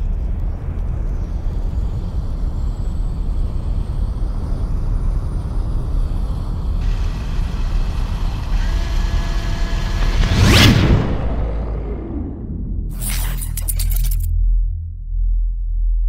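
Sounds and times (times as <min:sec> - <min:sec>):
deep rumble: 0:00.0 - 0:16.0
hiss: 0:00.4 - 0:10.3.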